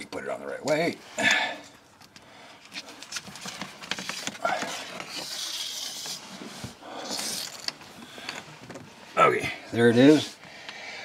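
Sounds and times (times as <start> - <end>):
rubbing and rustling: 2.5 - 9.2.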